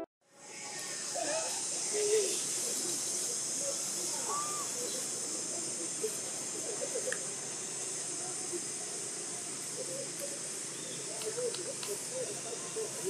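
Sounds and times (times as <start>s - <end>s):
steady high hiss: 0.3s - 13.0s
distant murmurs: 0.4s - 13.0s
small click: 11.2s - 12.0s.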